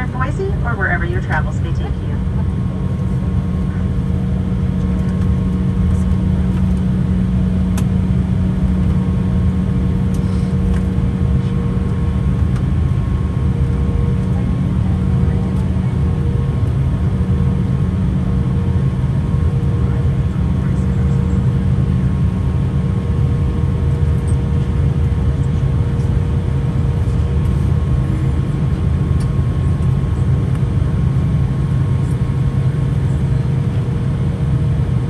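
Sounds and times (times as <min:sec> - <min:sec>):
jet engines low hum with whine: 0:00.0 - 0:35.0
faint clicks in cabin: 0:04.8 - 0:06.9, 0:07.7 - 0:07.9, 0:10.1 - 0:10.9, 0:11.8 - 0:12.7, 0:29.2 - 0:30.7.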